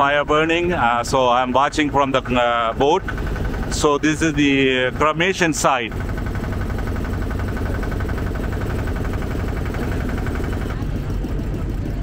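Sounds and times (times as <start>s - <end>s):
boat motor droning: 0.0s - 12.0s.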